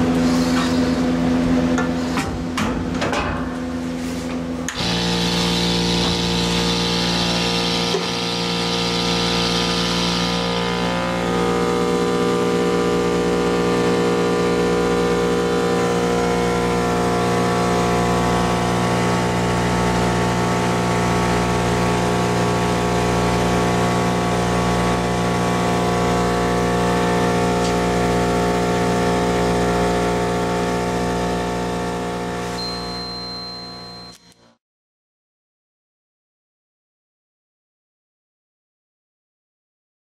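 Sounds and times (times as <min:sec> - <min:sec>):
vacuum pump humming: 0:04.7 - 0:34.0.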